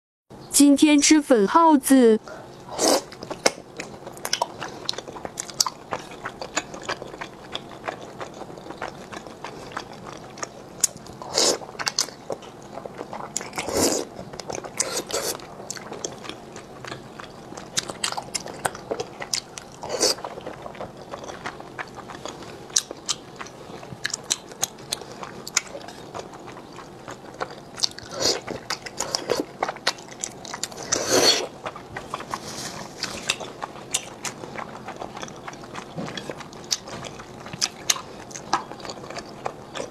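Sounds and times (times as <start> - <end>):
chewing with wet mouth clicks: 2.6 - 39.9
noodle slurping: 14.7 - 15.4, 30.7 - 33.5.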